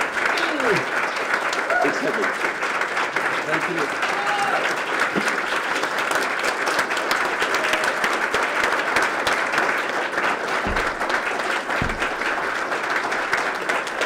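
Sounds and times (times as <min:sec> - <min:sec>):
crowd applauding: 0:00.0 - 0:14.0
low thumps: 0:10.6 - 0:12.7.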